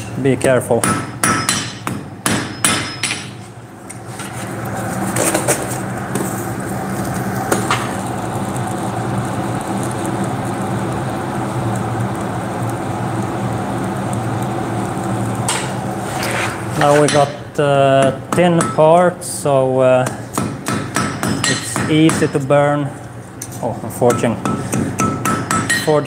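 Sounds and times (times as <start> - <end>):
forge blower humming: 0.0 - 26.0
hammer clanging on anvil: 0.8 - 3.4, 16.8 - 17.4, 18.0 - 19.0, 20.4 - 22.4, 24.1 - 26.0.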